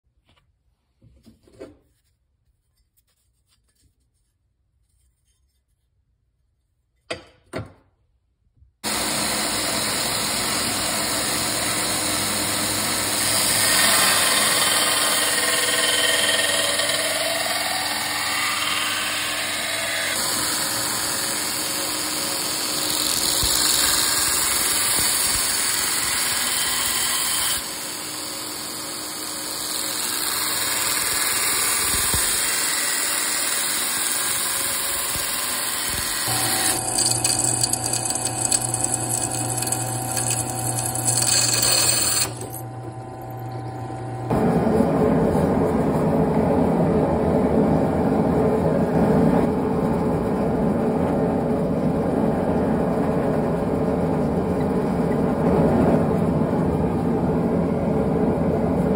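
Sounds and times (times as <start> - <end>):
belt grinder grinding steel: 8.8 - 44.3.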